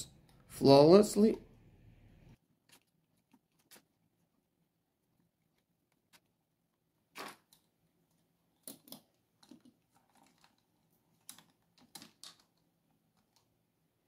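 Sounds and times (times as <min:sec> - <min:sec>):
small hard parts clicking and knocking: 0:07.1 - 0:13.6.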